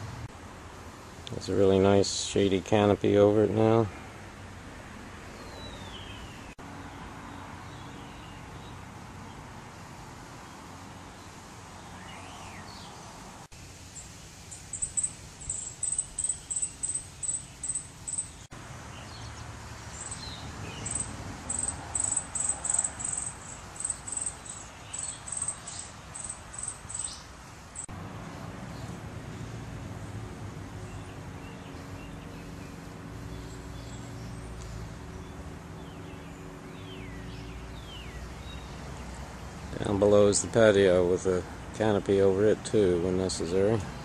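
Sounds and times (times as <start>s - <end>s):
very high-pitched chirps: 14.5s - 18.3s.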